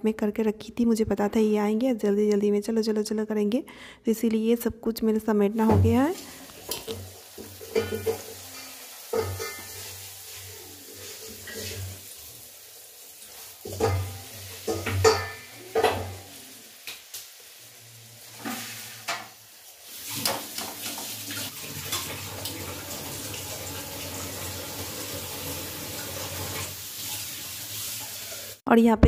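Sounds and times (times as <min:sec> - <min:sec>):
food frying in hot oil: 0:06.0 - 0:28.6
metal skimmer scraping pan: 0:06.2 - 0:10.4.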